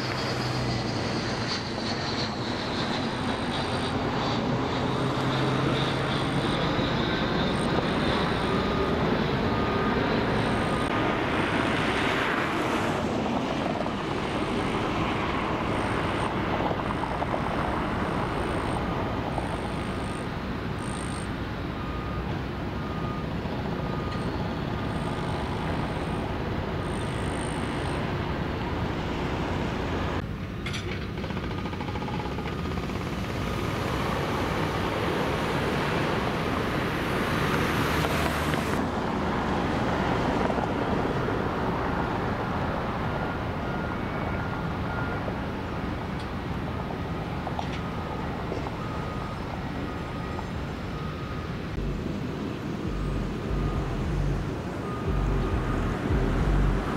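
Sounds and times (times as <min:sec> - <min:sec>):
faint high whining: 0:00.0 - 0:11.0, 0:14.0 - 0:30.2
traffic: 0:00.0 - 0:56.9
construction machinery rumble: 0:47.2 - 0:56.9.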